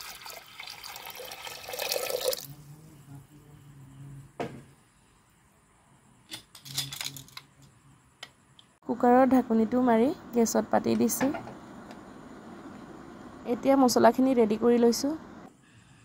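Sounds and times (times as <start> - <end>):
water pouring into a pot: 0.0 - 2.6.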